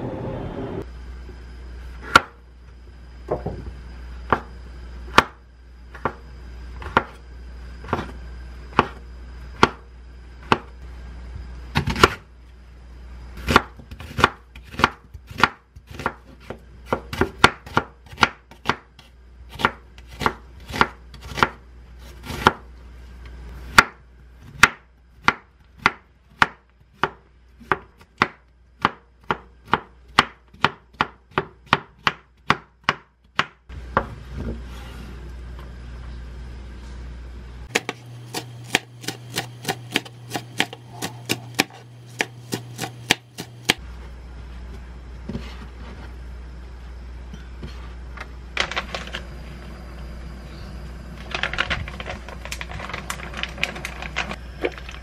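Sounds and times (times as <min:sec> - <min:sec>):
knife chopping on wooden board: 0:37.7 - 0:43.8.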